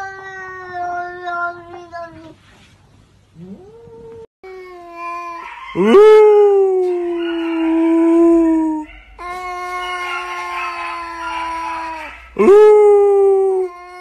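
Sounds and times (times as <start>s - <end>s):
cat yowling: 5.0s - 14.0s.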